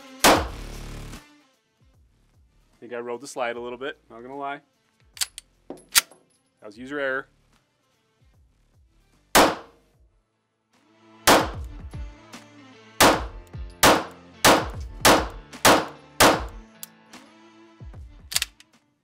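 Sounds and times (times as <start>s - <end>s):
pistol shots with echo: 0.2s - 0.5s, 9.4s - 9.8s, 11.3s - 11.6s, 13.0s - 16.6s.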